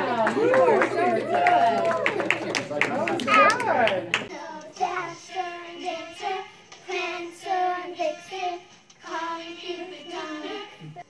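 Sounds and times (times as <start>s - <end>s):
child singing: 4.3s - 11.0s.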